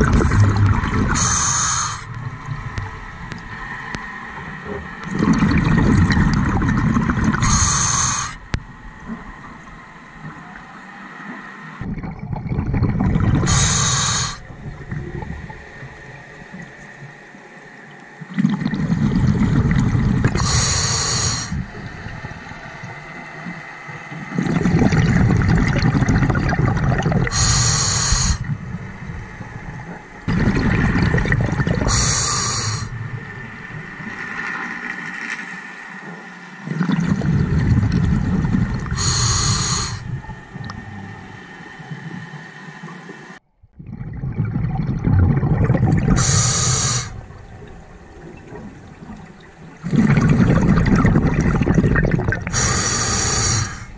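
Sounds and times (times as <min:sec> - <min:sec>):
diver breathing through regulator: 0:01.1 - 0:02.2, 0:07.4 - 0:08.4, 0:13.4 - 0:14.5, 0:20.3 - 0:21.7, 0:27.2 - 0:28.5, 0:31.8 - 0:33.0, 0:38.9 - 0:40.2, 0:46.1 - 0:47.3, 0:52.4 - 0:53.9.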